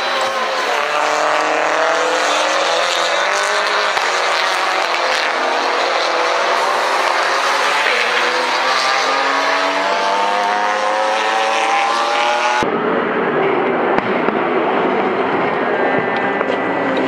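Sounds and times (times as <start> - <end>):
race car engine revving: 0.0 - 17.0.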